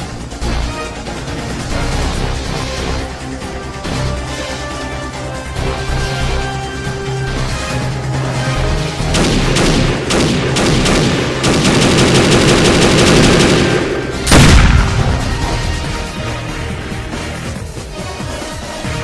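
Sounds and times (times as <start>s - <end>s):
music: 0.0s - 19.0s
automatic gunfire burst: 9.2s - 14.9s
single gunshots: 9.2s - 15.4s
loud blast: 12.6s - 15.9s.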